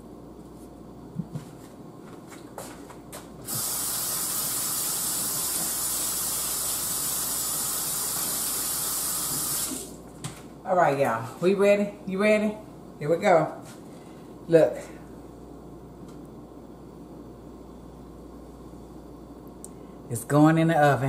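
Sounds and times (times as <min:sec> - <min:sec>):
faucet running into steel sink: 0:03.5 - 0:10.0.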